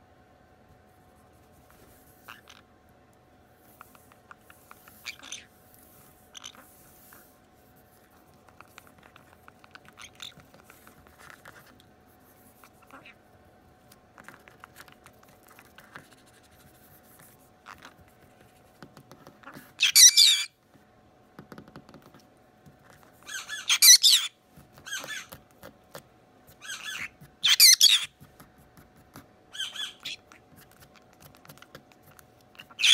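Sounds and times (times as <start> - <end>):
parrot chatter: 2.2 - 2.7, 3.7 - 7.2, 8.0 - 11.6, 12.6 - 13.2, 19.2 - 20.5, 23.0 - 28.2, 29.5 - 32.9
parrots screeching squawks: 5.0 - 5.5, 6.3 - 6.7, 19.4 - 20.5, 23.2 - 25.4, 26.6 - 28.1, 29.5 - 30.4, 32.6 - 32.9.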